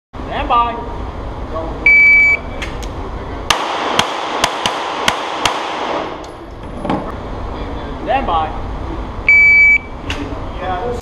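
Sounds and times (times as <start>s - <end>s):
shot timer beep: 1.9s - 2.5s, 9.3s - 9.9s
pistol shots echoing indoors: 3.5s - 6.3s.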